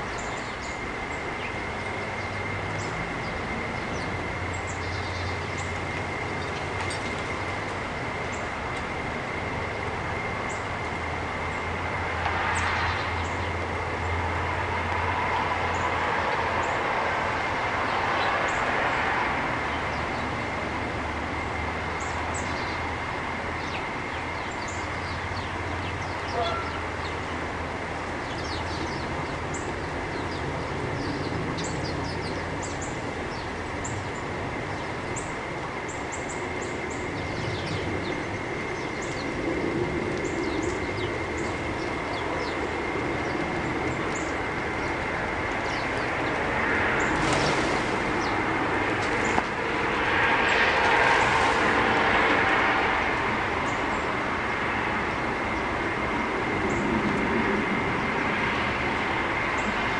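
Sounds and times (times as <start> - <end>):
small birds chirping: 0.0 - 8.6, 12.5 - 14.2, 21.9 - 49.4.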